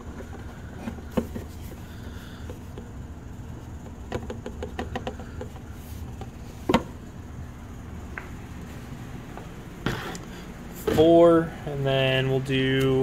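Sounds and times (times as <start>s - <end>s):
low background hum: 0.0s - 13.0s.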